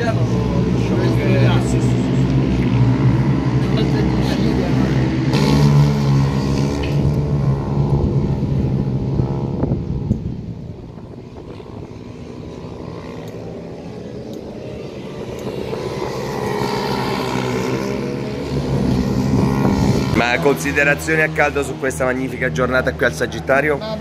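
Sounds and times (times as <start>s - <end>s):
mini motorcycles racing: 0.0s - 24.0s.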